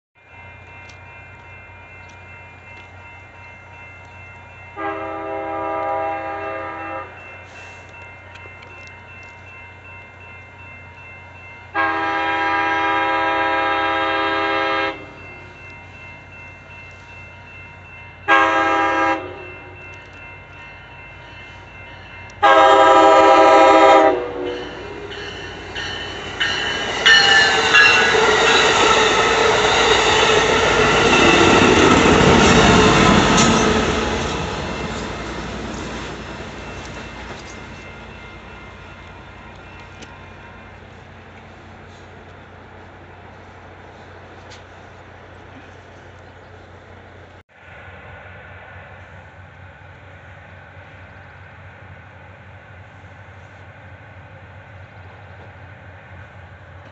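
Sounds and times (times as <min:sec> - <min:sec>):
passenger train passing: 0:00.2 - 0:56.9
locomotive horn blasts: 0:04.8 - 0:07.2, 0:11.7 - 0:15.1, 0:18.3 - 0:19.8, 0:22.4 - 0:25.1.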